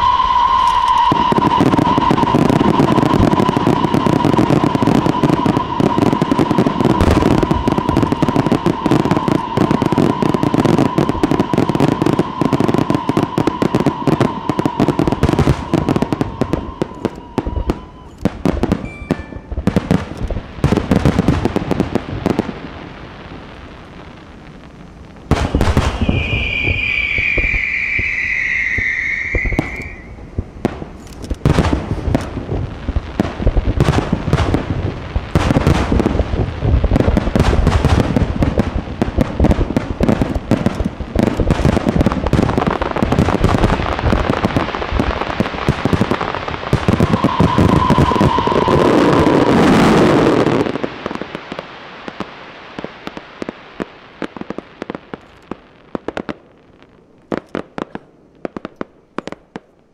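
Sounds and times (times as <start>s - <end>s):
high shrill firework whistle: 0.0s - 19.8s, 25.4s - 30.4s, 46.8s - 50.8s
fireworks bangs and crackle: 0.0s - 59.9s.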